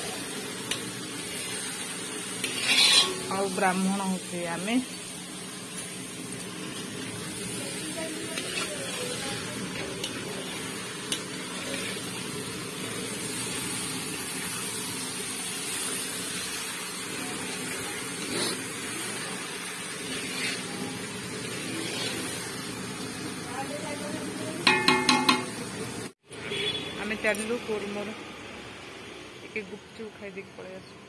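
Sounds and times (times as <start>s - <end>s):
curry sizzling in a pan: 0.0s - 26.2s
spatula scraping a pan: 2.4s - 3.6s, 8.2s - 12.3s, 18.2s - 18.6s, 20.0s - 20.8s, 21.4s - 22.5s.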